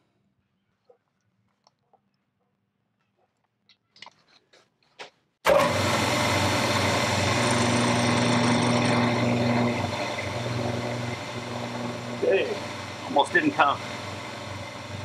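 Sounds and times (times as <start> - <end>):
milling machine whirring: 5.5 - 15.0.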